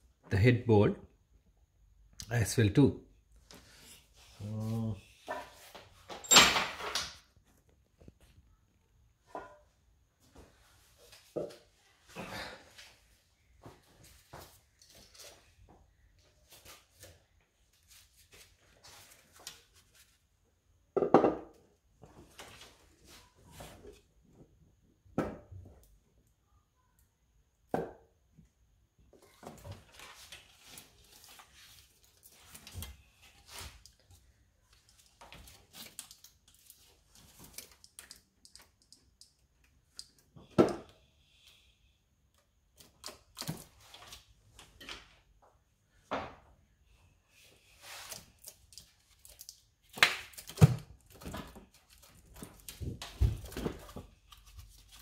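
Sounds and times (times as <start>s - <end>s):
metal knocks and clinks: 6.1s - 7.0s.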